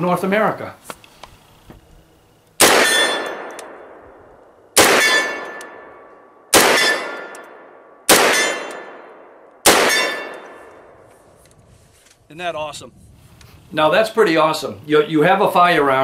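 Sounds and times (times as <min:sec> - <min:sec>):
rifle gunshots: 0:02.6 - 0:04.1, 0:04.8 - 0:10.9.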